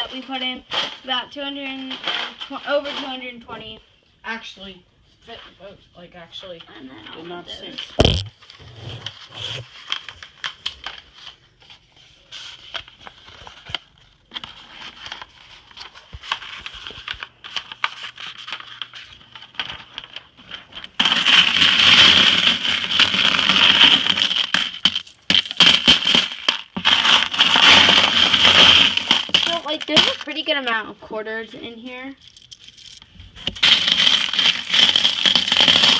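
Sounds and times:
coins clinking and jingling: 0:21.0 - 0:30.3, 0:33.6 - 0:35.9.

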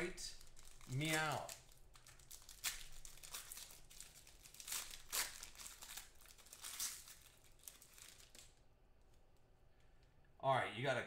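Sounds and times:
foil wrapper crinkling: 0:00.0 - 0:08.6.

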